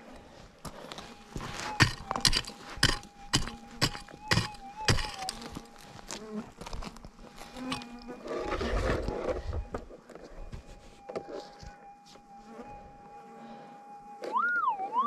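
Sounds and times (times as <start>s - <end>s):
metal detector threshold tone: 0.9s - 6.2s, 6.8s - 15.0s
sharp crunching hits: 0.9s - 9.2s.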